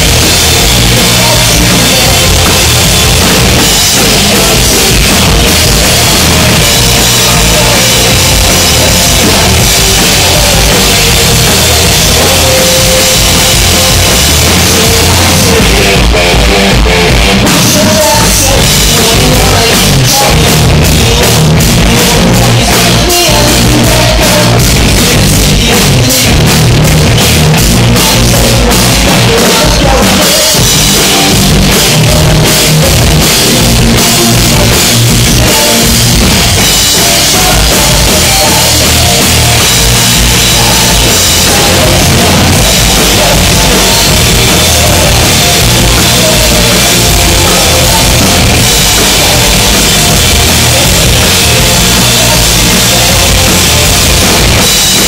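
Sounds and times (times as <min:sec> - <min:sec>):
live rock band playing: 0:00.0 - 0:55.0
quick drum and cymbal hits: 0:00.0 - 0:55.0.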